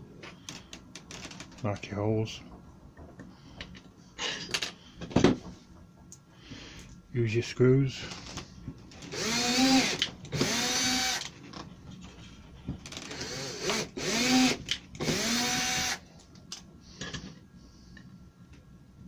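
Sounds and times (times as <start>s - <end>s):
cordless drill whining: 9.0s - 11.3s, 12.9s - 16.0s.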